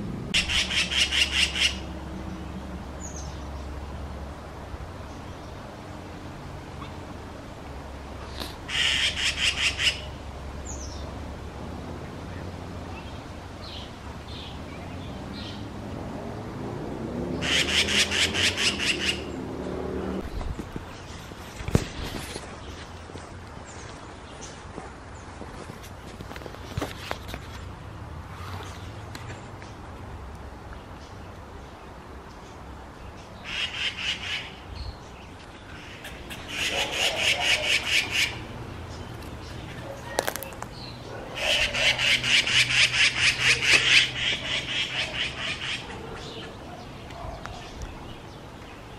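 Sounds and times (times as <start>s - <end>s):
magpies rattling chatter: 0.4s - 1.9s, 8.7s - 10.1s, 17.4s - 19.3s, 35.7s - 47.8s
bird scolding chatter: 35.7s - 38.4s.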